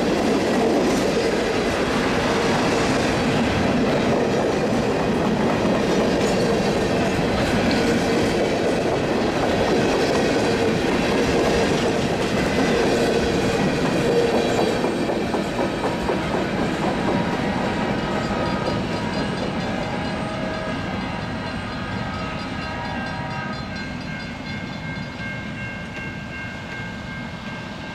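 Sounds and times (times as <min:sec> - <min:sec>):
train wheels clacking over rail joints: 0:00.0 - 0:21.4
train rumble: 0:00.0 - 0:27.9.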